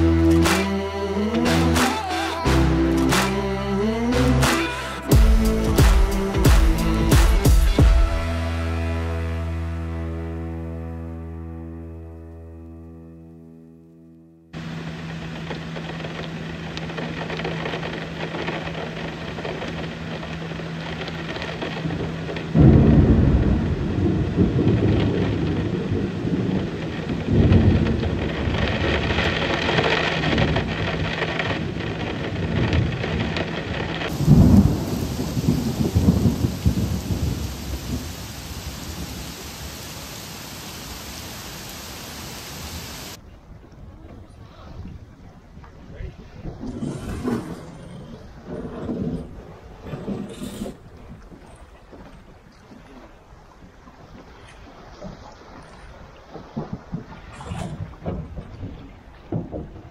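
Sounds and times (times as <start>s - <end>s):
heavy rain falling: 0.0s - 8.8s, 14.6s - 43.2s, 55.0s - 59.9s
low thunder rumbles: 15.2s - 52.2s, 55.8s - 59.9s.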